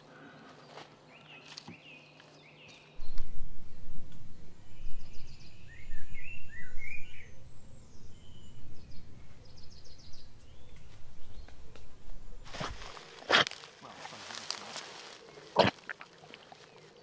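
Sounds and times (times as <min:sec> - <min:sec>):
small birds chirping: 0:00.1 - 0:17.0
wind buffeting microphone: 0:03.0 - 0:12.9.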